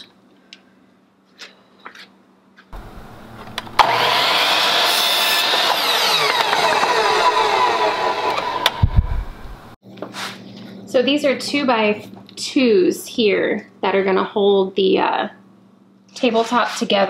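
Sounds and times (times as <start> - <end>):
mitre saw cutting wood: 2.8 - 9.0.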